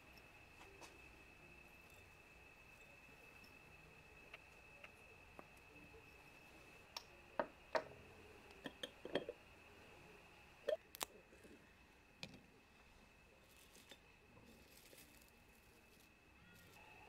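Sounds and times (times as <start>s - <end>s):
faint high whine: 0.0s - 17.0s
dried herbs dropping into bowl: 13.4s - 16.8s.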